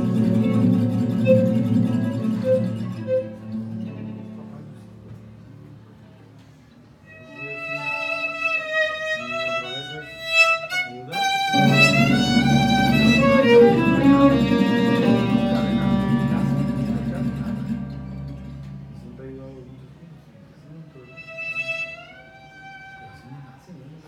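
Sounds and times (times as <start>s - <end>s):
upright double bass: 0.0s - 4.2s, 11.5s - 19.6s
violin solo: 0.0s - 4.3s, 7.1s - 19.2s, 20.9s - 23.7s
acoustic guitar: 0.0s - 5.8s, 11.4s - 19.9s.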